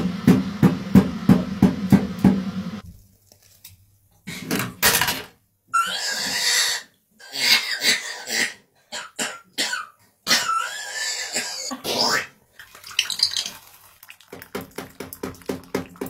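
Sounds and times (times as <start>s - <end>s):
parrot coughing and wheezing: 7.2s - 12.4s.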